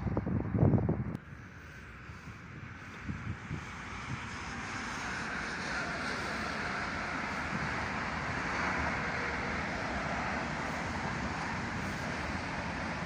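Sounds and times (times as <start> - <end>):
freight train wheels on rails: 2.6 - 13.0.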